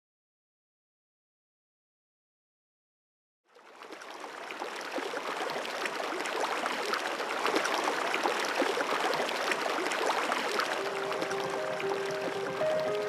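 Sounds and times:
river water bubbling over stones: 3.5s - 13.0s.

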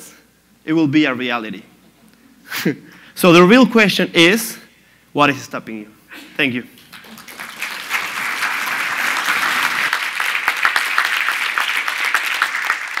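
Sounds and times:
audience applauding: 6.8s - 13.0s.

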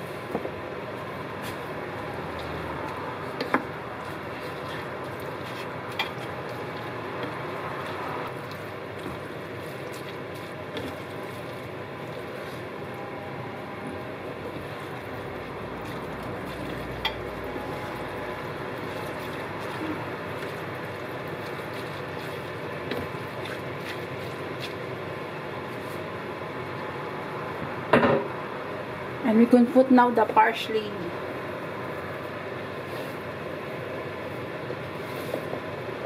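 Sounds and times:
spatula stirring noodles in a pan: 0.0s - 13.0s, 14.0s - 26.4s.

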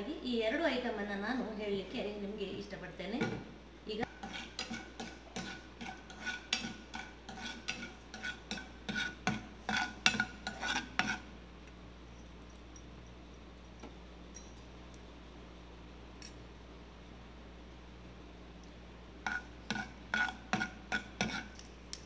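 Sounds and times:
faint steady background noise: 0.0s - 22.0s
spoon scraping frying pan: 4.0s - 11.3s, 19.2s - 21.7s.

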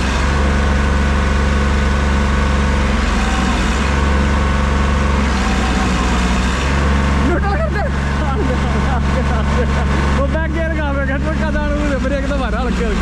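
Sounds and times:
tractor diesel engine droning: 0.0s - 13.0s.

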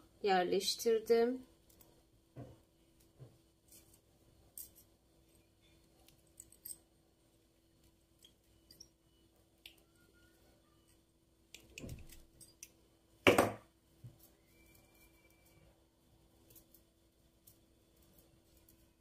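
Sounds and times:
faint steady hum: 0.0s - 19.0s
faint pliers and wire clicks: 1.6s - 2.0s, 3.0s - 6.8s, 9.6s - 10.0s, 10.8s - 12.8s.

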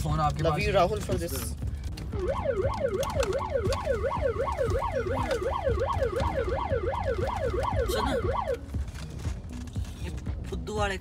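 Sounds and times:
electronic siren wailing: 2.1s - 8.6s.

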